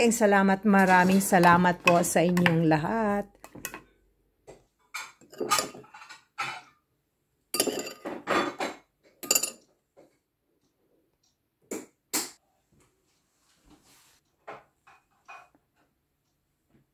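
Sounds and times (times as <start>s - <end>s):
dishes and utensils clinking: 4.8s - 6.8s, 7.6s - 9.7s.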